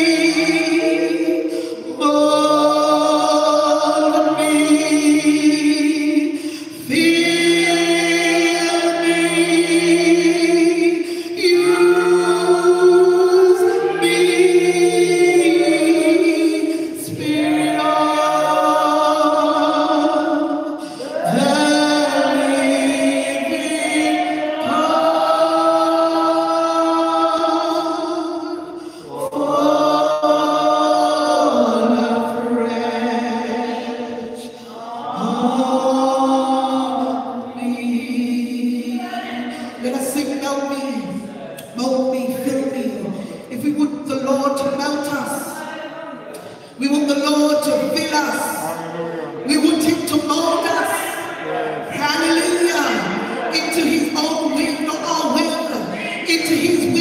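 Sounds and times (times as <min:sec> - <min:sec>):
woman singing into a microphone: 0:00.0 - 0:34.5
singer breathing: 0:01.5 - 0:01.9, 0:06.3 - 0:06.8, 0:11.0 - 0:11.4, 0:20.7 - 0:21.2, 0:28.7 - 0:29.2.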